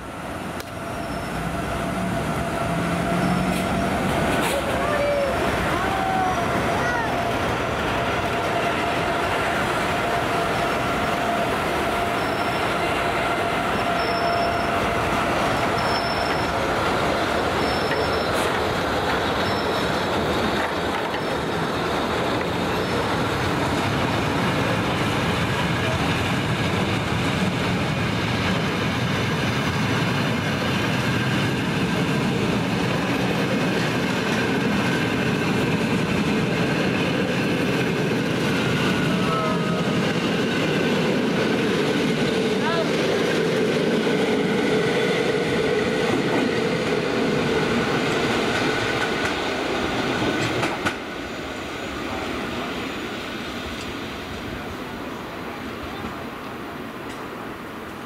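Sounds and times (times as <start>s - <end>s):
electric locomotive humming: 0.0s - 58.0s
train wheels rumbling on rails: 0.0s - 58.0s
wheel squeals: 0.9s - 1.5s, 12.1s - 12.7s, 13.7s - 14.9s, 15.5s - 16.6s, 17.6s - 18.6s, 19.4s - 20.0s.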